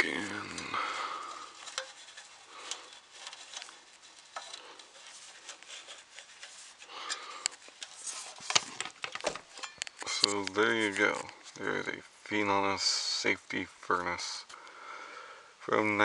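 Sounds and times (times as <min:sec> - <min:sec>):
handling rubbing and clicks: 0:01.2 - 0:11.8.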